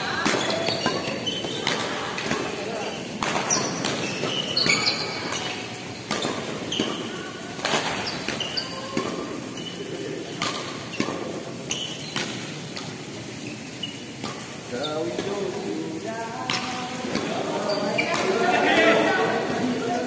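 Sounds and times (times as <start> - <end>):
shoes squeaking on court: 0.0 - 15.5, 16.6 - 20.0
racket hitting shuttlecock: 0.2 - 9.4, 10.1 - 11.4, 12.0 - 13.0, 14.2 - 14.6, 16.5 - 17.4.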